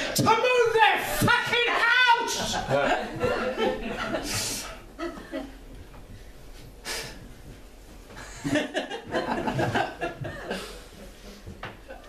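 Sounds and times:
audience laughing: 2.2 - 5.7, 8.2 - 12.0.

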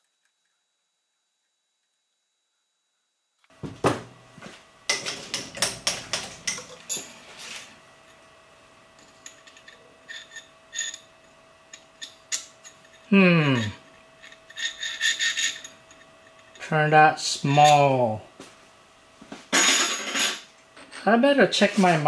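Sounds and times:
metal tools clinking and knocking: 4.9 - 7.2, 19.5 - 21.1.

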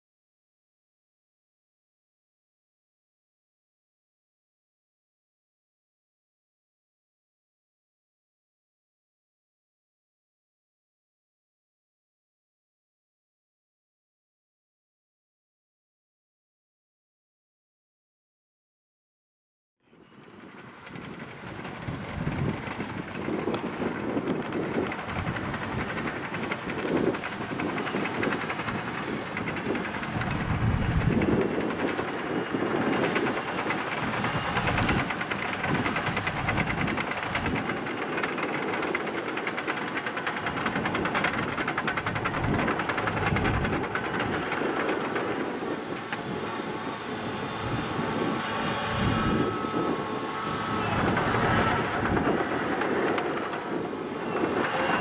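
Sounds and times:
diesel engine under load: 20.0 - 55.0
steel tracks clattering: 20.0 - 55.0.

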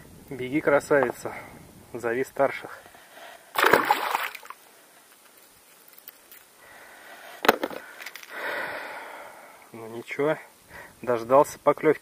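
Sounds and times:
fish splashing into water: 3.6 - 4.6.

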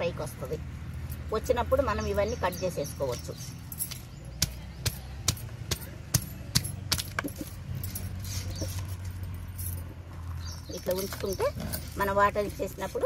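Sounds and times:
glass bangles clinking: 2.1 - 13.0
hands working potting soil: 3.0 - 9.2, 10.1 - 13.0.

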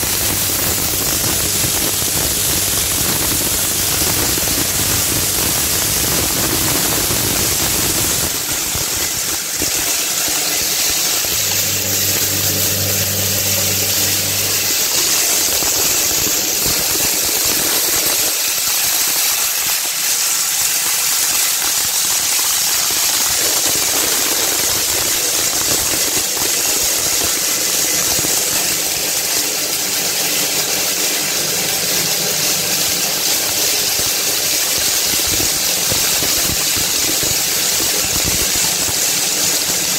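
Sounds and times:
crushing machine grinding: 0.0 - 39.9
low hum: 11.0 - 17.3.

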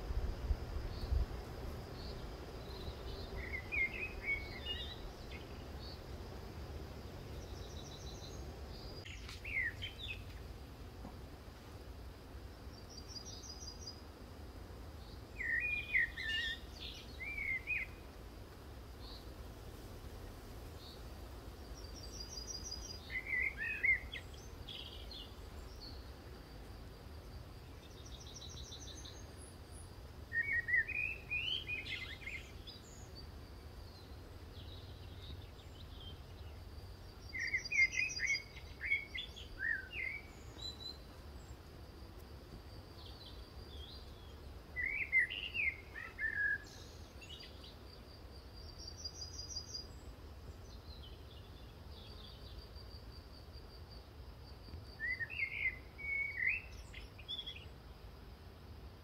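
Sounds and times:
birds warbling song: 1.9 - 6.1, 7.1 - 10.4, 15.0 - 18.1, 21.7 - 26.1, 27.6 - 41.6, 43.0 - 48.0, 48.6 - 52.9, 54.9 - 57.7.

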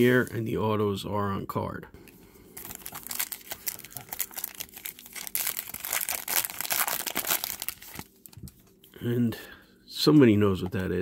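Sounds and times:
foil wrapper tearing and crinkling: 2.6 - 8.4.

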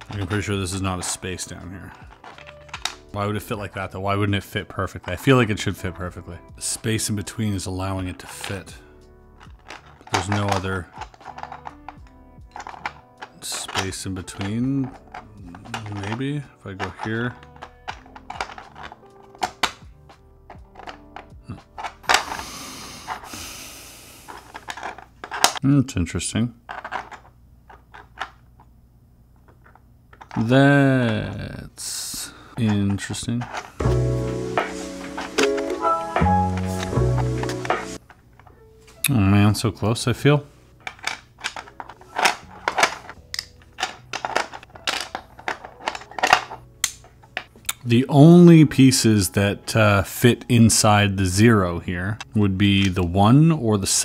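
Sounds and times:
plastic pieces clicking together: 0.0 - 3.2, 9.4 - 22.5, 24.3 - 25.6, 26.7 - 28.7, 32.9 - 38.6, 40.8 - 47.8
background music: 0.0 - 25.6, 31.8 - 54.0.

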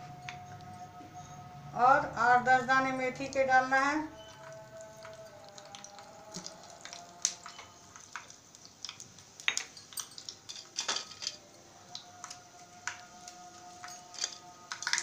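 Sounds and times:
seeds popping in hot oil: 3.2 - 15.0.

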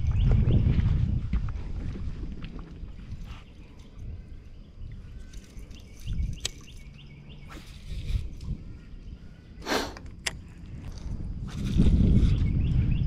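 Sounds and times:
wind rumble on microphone: 0.0 - 13.0
small birds chirping: 2.7 - 13.0.

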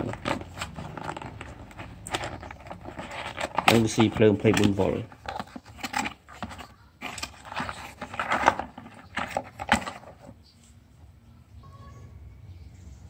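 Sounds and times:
rummaging in cardboard box: 0.0 - 10.5.

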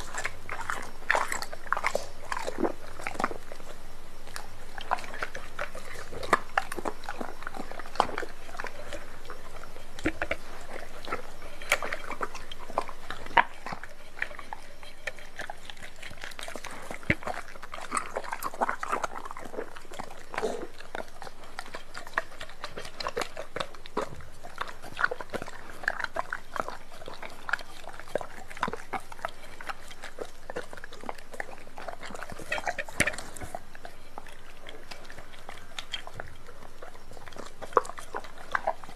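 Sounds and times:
dog chewing meat: 0.0 - 38.9.

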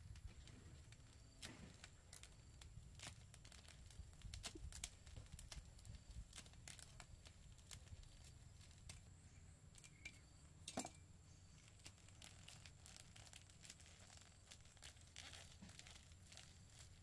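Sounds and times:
faint crackles and ticks: 0.0 - 10.4, 11.2 - 17.0.

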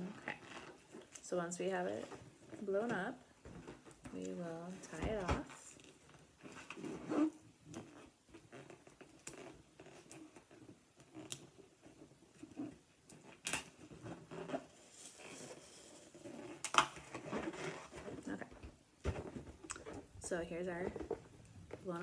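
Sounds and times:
rubbery rubbing and handling: 0.0 - 22.0.

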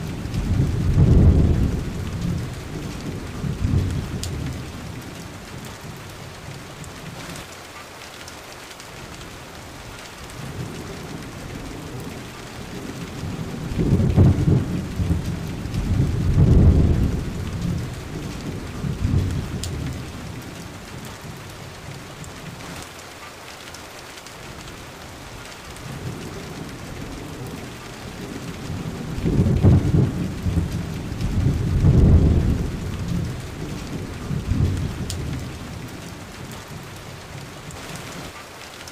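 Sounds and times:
rolling thunder: 0.0 - 6.1, 10.3 - 22.7, 25.8 - 38.4
steady rain: 0.0 - 38.9.

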